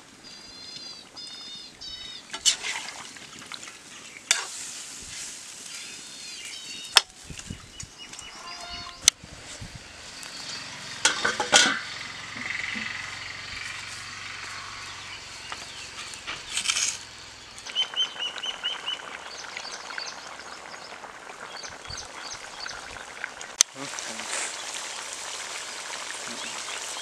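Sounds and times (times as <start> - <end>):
birds chirping: 0.2 - 2.4, 5.7 - 23.2, 24.1 - 27.0
bird giving short high notes: 8.3 - 9.1
wood fire crackling: 9.4 - 27.0.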